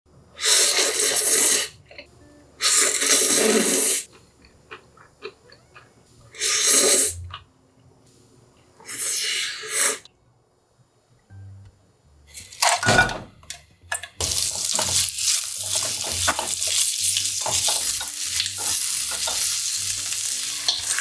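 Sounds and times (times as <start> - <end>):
loud noodle slurps: 0.4 - 1.8.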